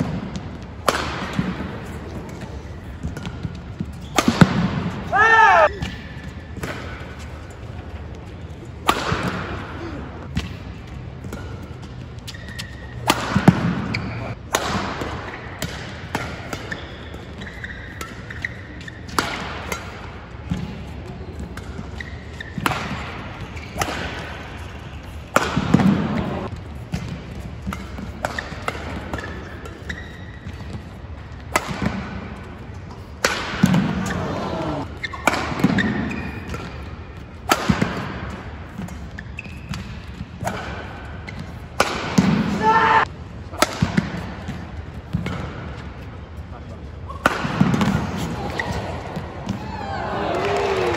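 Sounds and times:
racket striking shuttlecock: 0:00.0 - 0:07.1, 0:08.8 - 0:09.6, 0:10.3 - 0:20.8, 0:21.4 - 0:30.8, 0:31.4 - 0:42.6
shoe squeaks on court: 0:12.2 - 0:13.0, 0:13.8 - 0:14.4, 0:16.6 - 0:19.1, 0:21.9 - 0:22.6, 0:29.2 - 0:30.8, 0:39.1 - 0:40.0.

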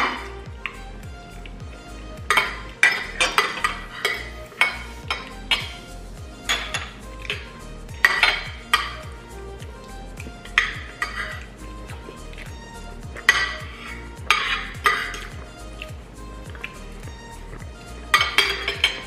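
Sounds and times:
soft background music: 0:00.0 - 0:19.0
cutlery scraping and clinking plates: 0:02.4 - 0:05.7, 0:13.2 - 0:15.3, 0:18.1 - 0:19.0.

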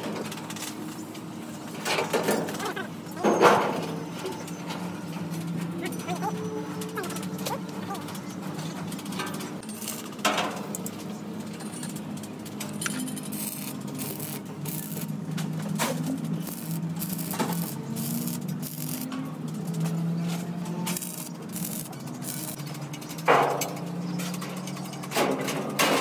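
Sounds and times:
welding arc crackling: 0:09.6 - 0:10.3, 0:12.4 - 0:20.1, 0:20.9 - 0:23.1.

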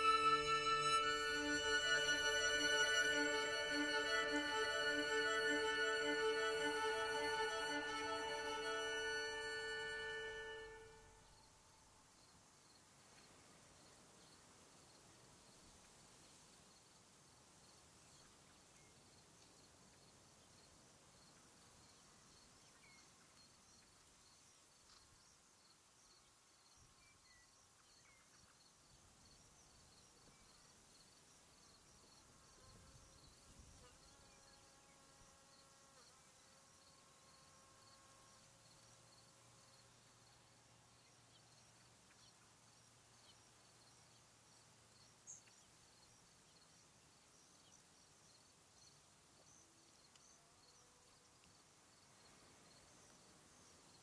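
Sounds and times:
faint hum: 0:00.0 - 0:11.8
insects chirping: 0:00.0 - 0:15.0, 0:18.8 - 0:54.0
small tick: 0:50.1 - 0:50.3.

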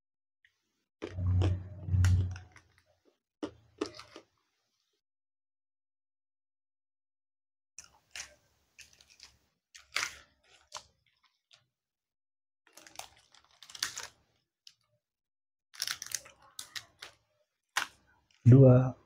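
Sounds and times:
chewing crunchy peanuts: 0:03.4 - 0:04.4, 0:12.7 - 0:14.8, 0:15.8 - 0:18.4.

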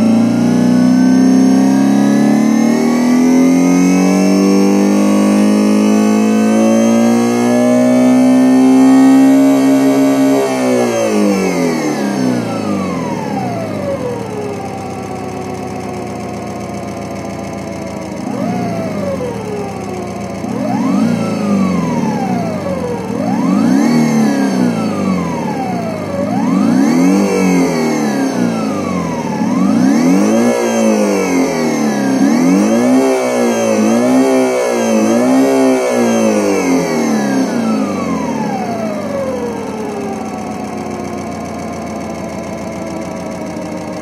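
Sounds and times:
synthesized engine revving: 0:00.0 - 0:44.0.

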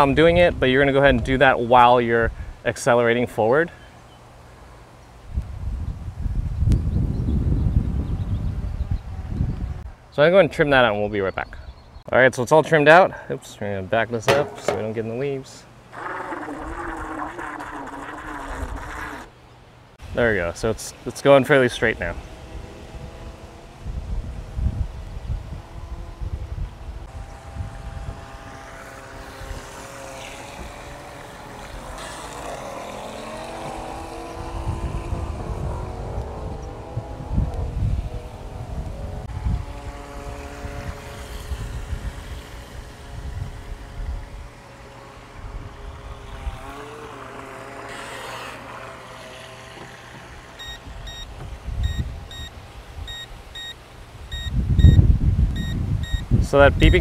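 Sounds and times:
wind rumble on microphone: 0:05.2 - 0:10.0, 0:21.8 - 0:47.0, 0:49.9 - 0:57.0
electric motor whining: 0:15.9 - 0:19.4, 0:22.2 - 0:52.5
short high-pitched beeps: 0:50.6 - 0:52.5, 0:53.1 - 0:55.0, 0:55.6 - 0:56.3.

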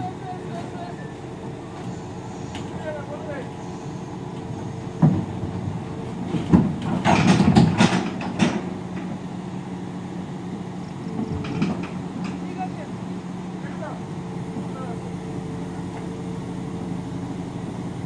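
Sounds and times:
excavator diesel engine running: 0:00.0 - 0:18.0
loud metal clanks: 0:06.4 - 0:08.7.

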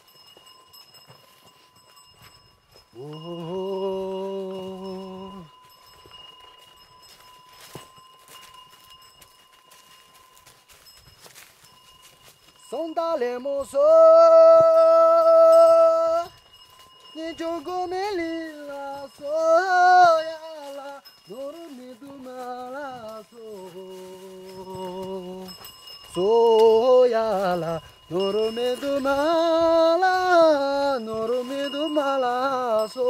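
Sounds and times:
person singing unaccompanied: 0:02.9 - 0:05.5, 0:12.6 - 0:16.4, 0:17.1 - 0:33.0.

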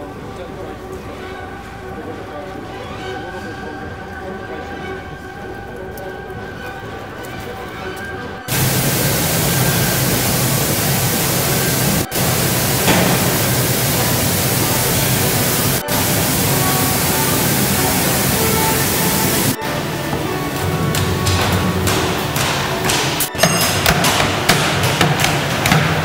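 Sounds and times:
low hum: 0:08.5 - 0:19.6
machinery hissing: 0:08.5 - 0:20.4.

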